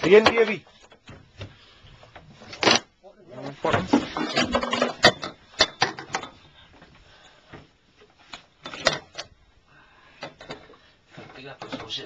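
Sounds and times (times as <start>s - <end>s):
sharp knocks and clatters: 3.6s - 6.4s.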